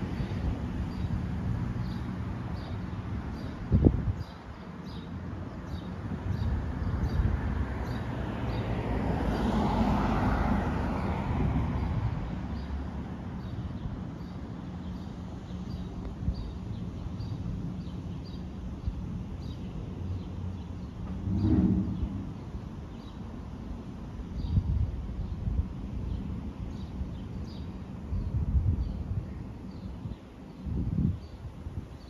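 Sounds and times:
car passing: 0:07.4 - 0:13.4, 0:21.0 - 0:22.6
low rumble: 0:21.1 - 0:22.4.

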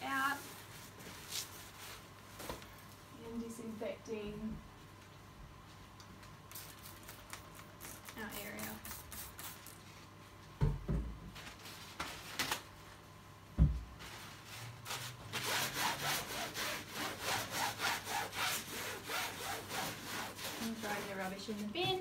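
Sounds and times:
paper towel scrubbing rubber mat: 0:14.0 - 0:22.0.

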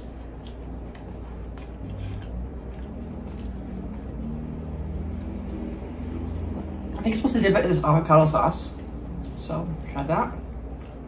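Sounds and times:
person chewing: 0:00.0 - 0:05.1, 0:08.7 - 0:09.9, 0:10.6 - 0:11.0
low hum: 0:00.0 - 0:11.0.

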